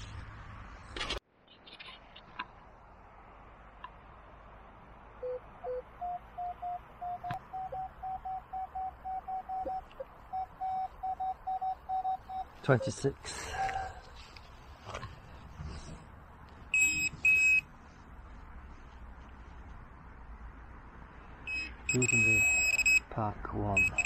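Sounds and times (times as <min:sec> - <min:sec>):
metal detector beeps: 0:05.2 - 0:13.0, 0:16.7 - 0:17.6, 0:21.5 - 0:23.0, 0:23.8 - 0:24.0.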